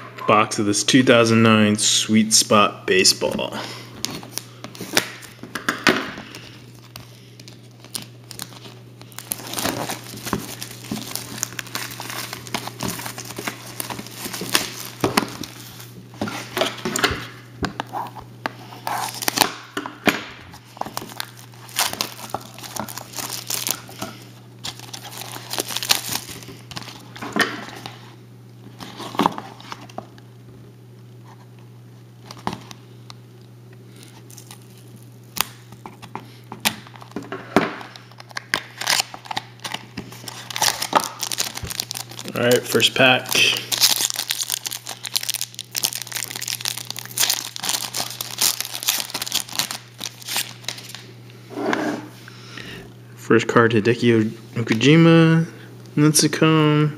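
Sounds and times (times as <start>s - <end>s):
card packs rustling: 2.9s - 19.9s, 20.5s - 28.1s, 28.7s - 30.1s, 33.9s - 51.1s
plastic wrap crinkling and tearing: 6.2s - 19.7s, 20.5s - 28.1s, 34.0s - 51.1s.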